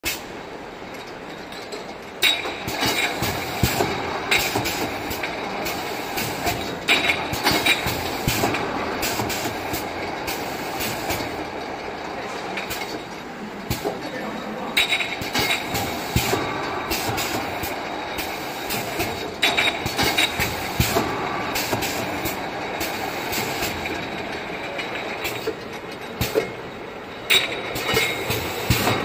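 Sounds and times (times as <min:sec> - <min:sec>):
steady machine noise: 0:00.2 - 0:29.0
pneumatic nozzle clacks with hiss: 0:02.2 - 0:11.4, 0:12.6 - 0:13.0, 0:13.7 - 0:14.0, 0:14.8 - 0:24.0, 0:25.2 - 0:26.6, 0:27.3 - 0:29.0.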